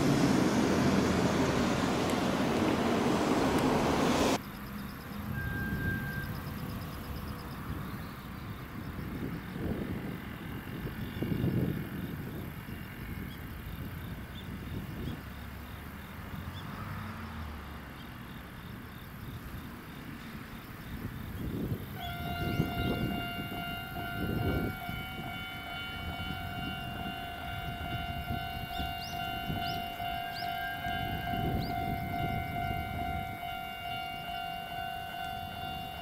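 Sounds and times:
level-crossing alarm ringing: 4.8s - 7.6s, 22.0s - 36.0s.

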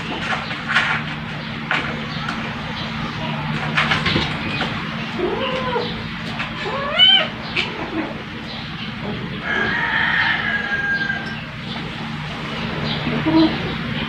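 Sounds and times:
cat meowing: 5.2s - 6.0s, 6.6s - 7.4s.

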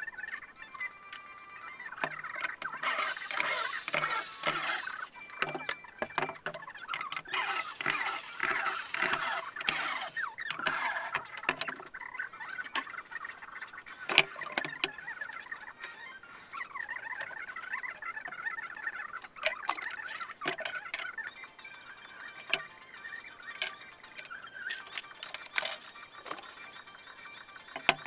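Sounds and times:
electric screwdriver driving screws: 2.6s - 6.4s, 7.1s - 11.8s.

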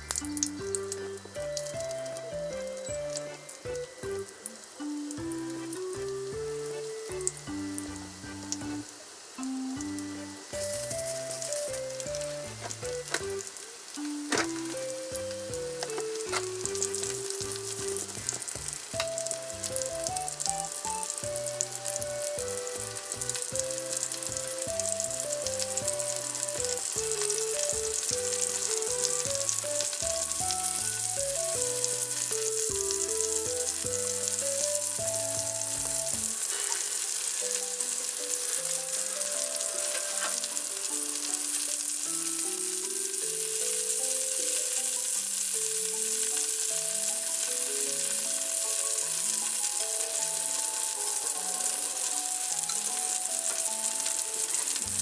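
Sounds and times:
chicken sizzling in oil: 0.0s - 55.0s
light background music: 0.0s - 55.0s.

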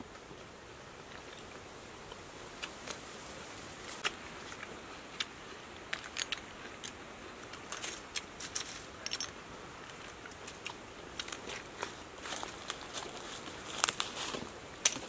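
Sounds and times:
steady hiss: 0.0s - 15.0s
oyster shells clicking: 5.8s - 7.0s.

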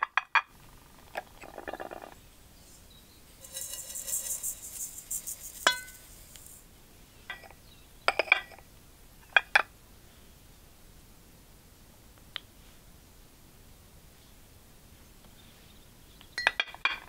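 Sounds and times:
sugar pouring grainy hiss: 2.5s - 6.7s
bowl clink ringing: 3.4s - 6.4s
ceramic bowls clinking together: 3.4s - 6.5s.

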